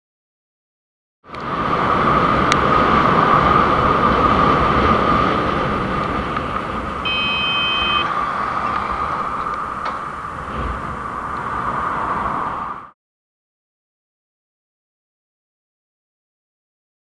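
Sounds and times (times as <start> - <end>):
wind rush: 1.3 - 13.0
motorcycle horn: 7.0 - 8.1.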